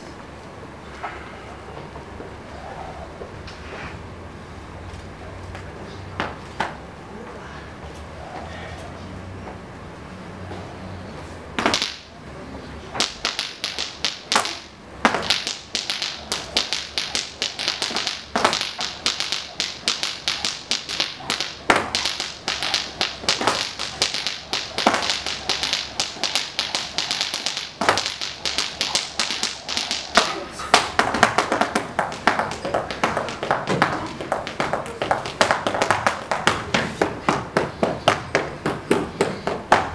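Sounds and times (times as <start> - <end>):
dance footwork on wooden floor: 13.0 - 39.9
loud foot stamps: 13.0 - 39.9.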